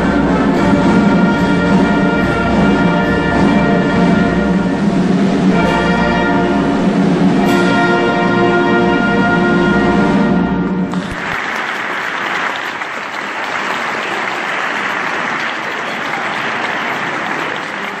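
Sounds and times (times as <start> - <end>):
wind band holding chord: 0.0 - 11.1
audience applause: 10.9 - 18.0.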